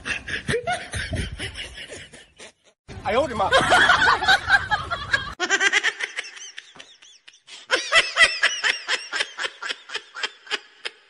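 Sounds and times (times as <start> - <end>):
person laughing: 0.0 - 2.8.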